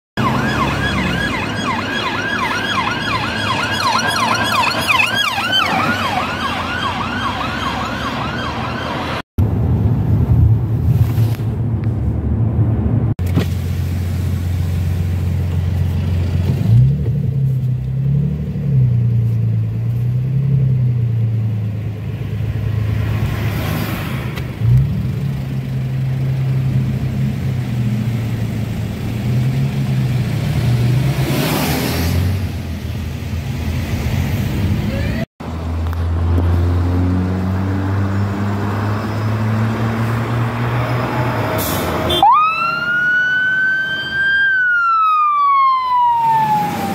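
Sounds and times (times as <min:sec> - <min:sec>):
police siren yelping: 0:00.2 - 0:09.2, 0:42.1 - 0:46.9
road traffic passing: 0:00.2 - 0:46.9.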